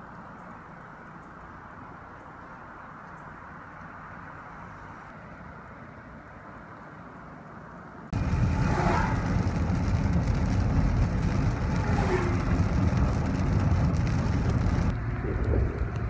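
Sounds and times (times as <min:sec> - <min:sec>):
road and engine rumble: 0:00.0 - 0:16.0
windshield wiper sweeping: 0:08.2 - 0:14.9
rain hitting windshield: 0:08.2 - 0:16.0.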